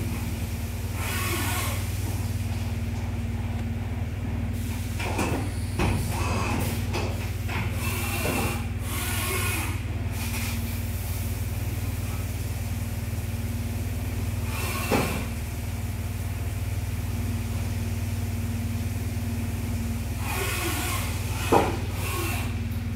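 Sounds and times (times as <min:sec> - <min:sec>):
short noisy machining bursts: 0:00.9 - 0:02.0, 0:07.7 - 0:09.8, 0:20.2 - 0:22.6.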